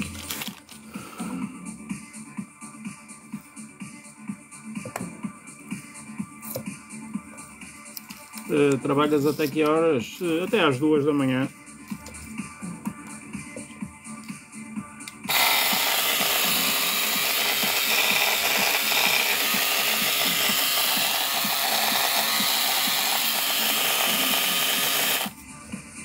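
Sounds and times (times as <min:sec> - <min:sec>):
electric shaver buzzing: 0:15.3 - 0:25.3.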